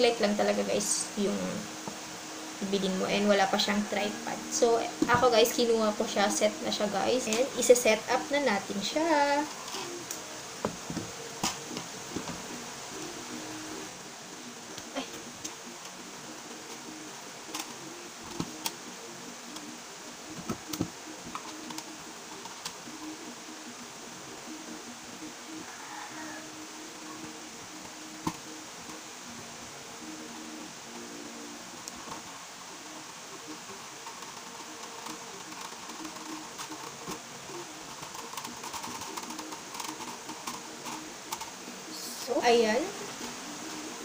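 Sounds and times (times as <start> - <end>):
faint background music: 0.0 - 44.0
plastic clicks and taps: 20.4 - 22.8.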